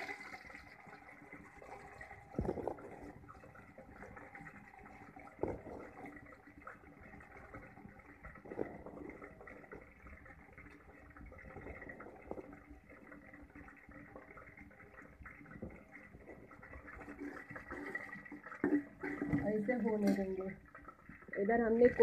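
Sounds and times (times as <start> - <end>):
ladle stirring in a pot: 15.4 - 21.3.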